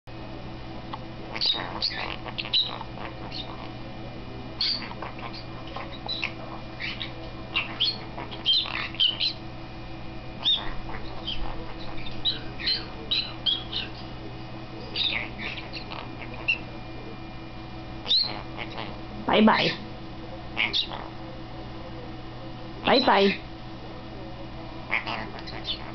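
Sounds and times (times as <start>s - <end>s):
parrot chirps and squawks: 1.3s - 3.7s, 4.6s - 9.4s, 10.4s - 14.0s, 14.9s - 16.7s, 18.0s - 19.8s, 20.6s - 21.2s, 24.9s - 25.9s.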